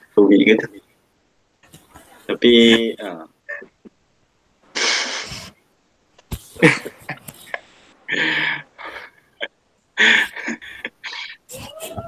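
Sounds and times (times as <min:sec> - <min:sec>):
man chuckling: 0:06.6 - 0:12.0.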